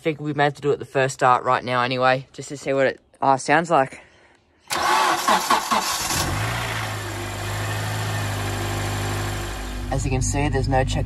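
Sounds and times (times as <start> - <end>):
starter motor cranking: 4.7 - 7.0
car engine idling: 4.7 - 11.0.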